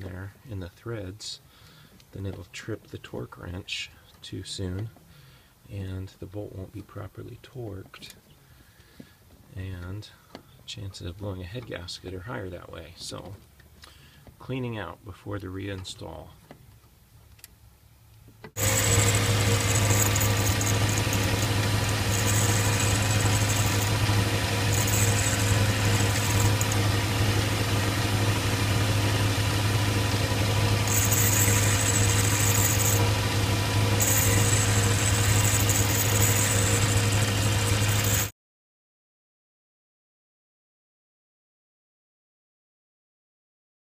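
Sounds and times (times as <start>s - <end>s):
electric motor humming: 18.6s - 38.3s
grinding wheel hiss: 18.6s - 38.3s.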